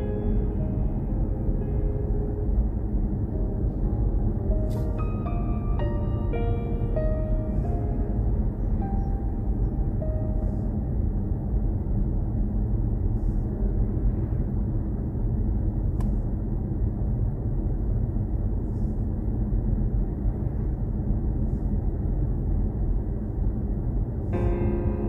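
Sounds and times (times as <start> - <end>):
car driving rumble: 0.0 - 25.0.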